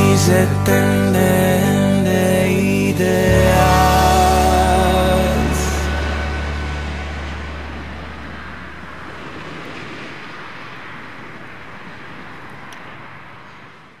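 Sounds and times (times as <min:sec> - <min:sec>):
low bass note: 0:00.0 - 0:09.7
hiss-like wash: 0:00.0 - 0:14.0.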